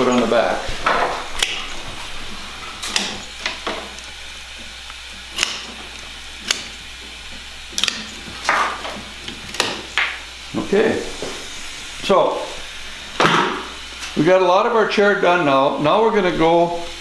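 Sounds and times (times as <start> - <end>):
hand cutters snipping sticks: 1.4 - 1.7, 2.8 - 4.1, 4.8 - 6.8, 7.7 - 10.1.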